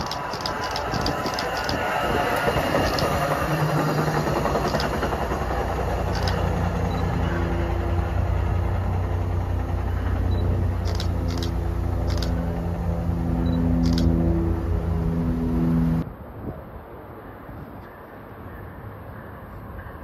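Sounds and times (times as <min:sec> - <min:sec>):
short sharp clicks: 0:00.0 - 0:01.8, 0:06.1 - 0:06.4, 0:10.9 - 0:12.4
locomotive low hum: 0:00.0 - 0:16.0
train rolling rumble: 0:00.0 - 0:20.0.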